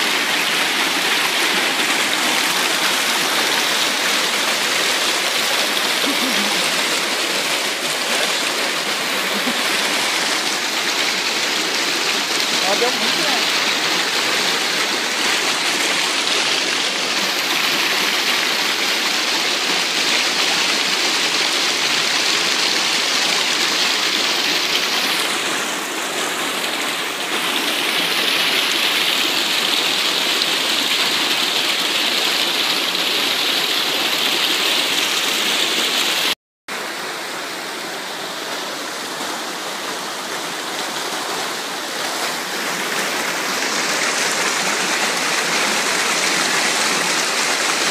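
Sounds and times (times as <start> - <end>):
water rushing over rocks: 0.0 - 47.9.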